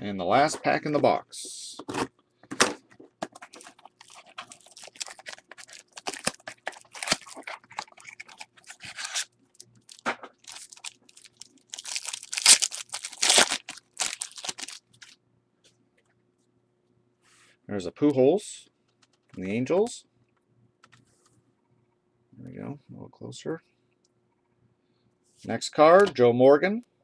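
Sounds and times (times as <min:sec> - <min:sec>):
card pack tearing and crinkling: 0:03.3 - 0:09.3, 0:09.9 - 0:15.2.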